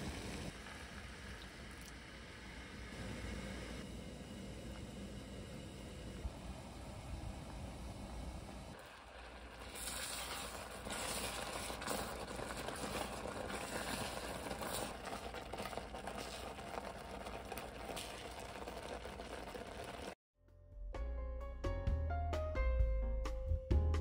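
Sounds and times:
compote bubbling in a pot: 0.0s - 20.2s
spatula stirring: 9.4s - 20.2s.

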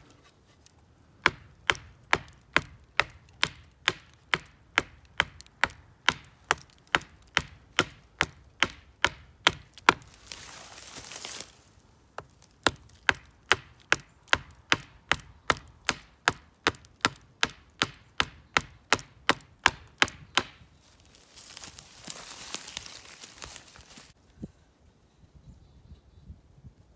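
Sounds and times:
axe chopping tree trunk: 1.2s - 11.5s, 12.2s - 20.6s
rustling: 9.9s - 12.6s, 20.8s - 24.2s.

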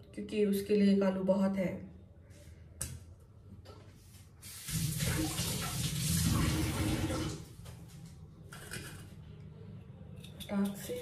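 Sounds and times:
tap water running into sink: 4.4s - 7.5s.

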